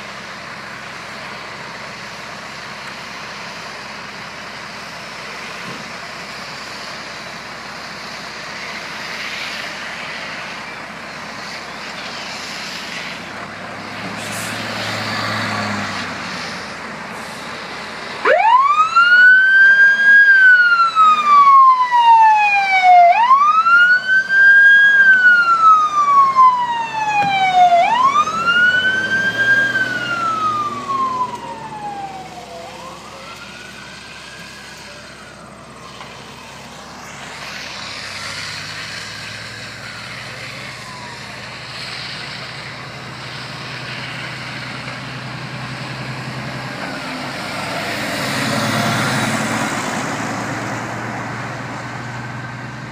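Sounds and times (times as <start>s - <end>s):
emergency vehicle siren wailing: 0.0s - 52.9s
road traffic noise: 0.0s - 52.9s
vehicle passing: 12.1s - 18.9s, 19.5s - 52.9s.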